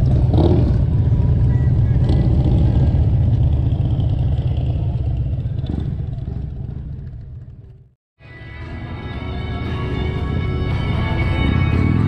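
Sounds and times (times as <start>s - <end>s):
motorcycle engines idling: 0.0s - 7.9s.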